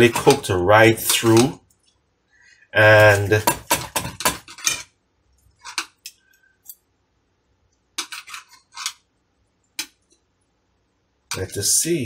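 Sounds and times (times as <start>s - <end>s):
cutlery scraping on a plate: 0.0s - 1.5s, 3.0s - 4.9s, 5.6s - 6.0s, 8.0s - 9.0s.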